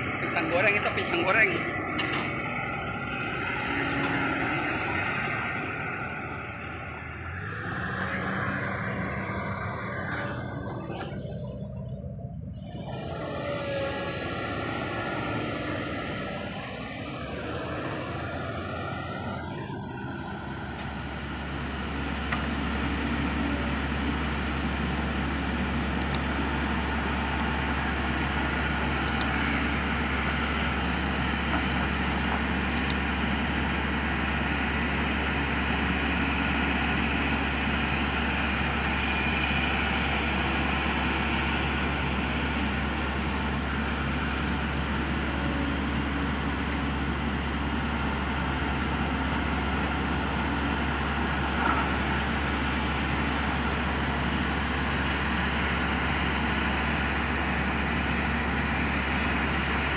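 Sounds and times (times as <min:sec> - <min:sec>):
excavator diesel engine: 0:00.0 - 0:59.9
steady low hum: 0:05.2 - 0:22.8
short sharp clicks: 0:29.1 - 0:29.3.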